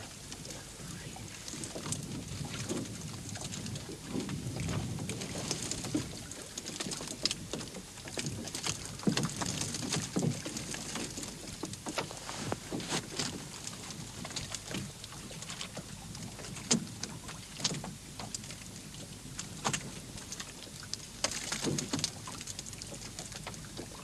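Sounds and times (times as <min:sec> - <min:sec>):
fish flapping on boat floor: 0:01.5 - 0:15.0.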